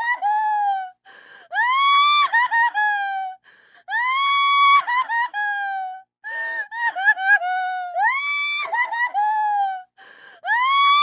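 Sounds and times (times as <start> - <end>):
woman crying and sobbing: 0.0 - 11.0
gasping breath: 1.0 - 1.6, 3.4 - 3.9, 10.0 - 10.5.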